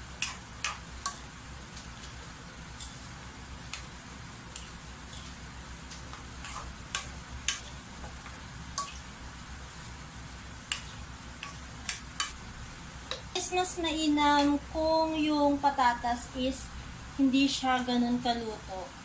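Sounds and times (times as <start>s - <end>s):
faint sizzle of simmering liquid: 0.0s - 19.0s
steady low hum: 0.0s - 19.0s
spatula scraping metal wok: 6.4s - 7.8s.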